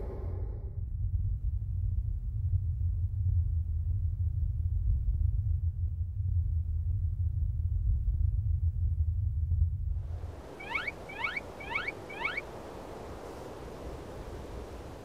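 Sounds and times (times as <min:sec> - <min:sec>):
deep rumble: 0:00.0 - 0:10.6.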